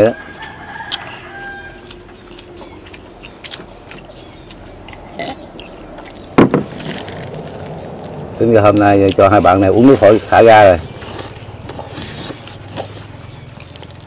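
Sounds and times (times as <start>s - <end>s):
chewing: 0.3s - 14.0s
sharp knock: 6.4s - 6.8s.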